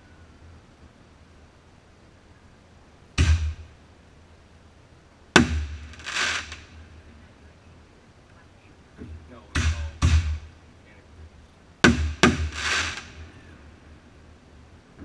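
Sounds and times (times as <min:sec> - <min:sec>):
firework bangs: 0:05.4 - 0:06.8, 0:09.4 - 0:10.5, 0:11.8 - 0:13.4
firework sparkle hiss: 0:05.5 - 0:07.0, 0:12.1 - 0:13.6.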